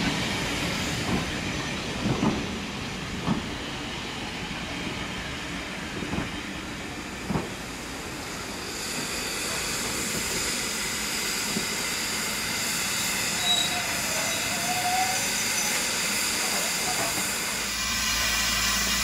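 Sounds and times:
train coaches rumbling: 0.0s - 19.0s
hiss of steam: 6.6s - 19.0s.

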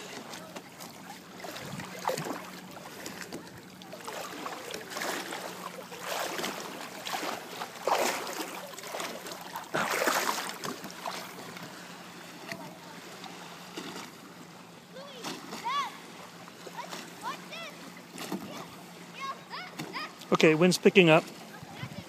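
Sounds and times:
lake water sloshing and splashing: 0.0s - 22.0s.

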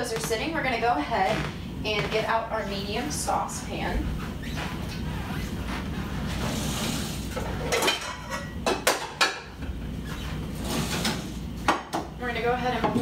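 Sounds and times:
low steady hum: 0.0s - 13.0s
pots and pans clanking: 7.3s - 9.7s.

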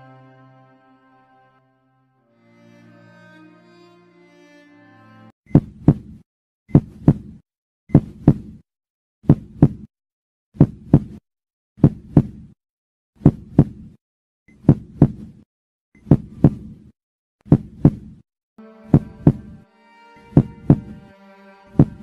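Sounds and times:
slow heartbeat thumps: 5.5s - 8.6s, 9.2s - 9.9s, 10.6s - 11.2s, 11.8s - 12.4s, 13.2s - 13.8s, 14.6s - 15.3s, 16.1s - 16.7s, 17.5s - 18.1s, 18.9s - 19.5s, 20.3s - 21.0s, 21.8s - 22.0s.

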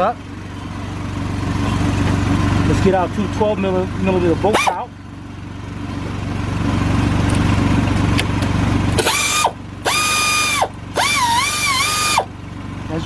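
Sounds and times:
air compressor humming: 4.0s - 12.6s
air ratchet whine: 4.5s - 4.8s, 9.0s - 12.3s.

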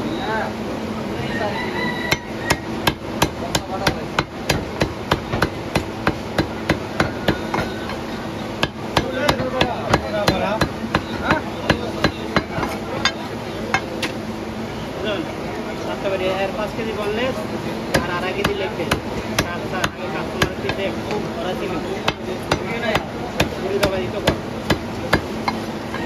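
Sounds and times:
cleaver chopping on wooden block: 2.1s - 7.8s, 8.6s - 12.7s, 22.0s - 25.3s.

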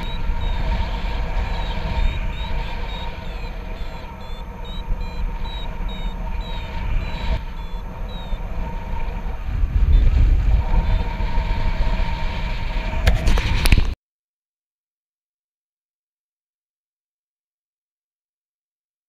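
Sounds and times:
short high beeps: 0.0s - 8.4s
wind buffeting microphone: 0.0s - 14.0s.

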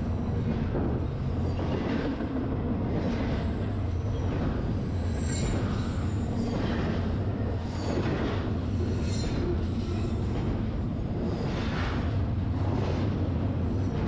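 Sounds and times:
freight train rumble: 0.0s - 14.0s
train wheels squealing: 1.1s - 2.2s, 3.0s - 10.6s, 11.2s - 12.1s.

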